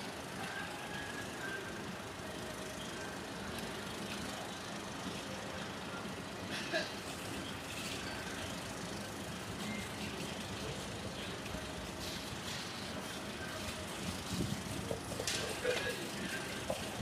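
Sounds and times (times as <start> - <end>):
generator engine humming: 0.0 - 17.0.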